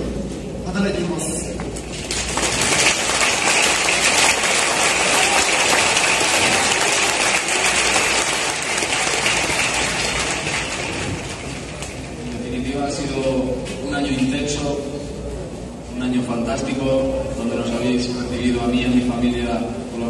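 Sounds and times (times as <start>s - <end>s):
stadium crowd applauding: 1.9s - 12.4s.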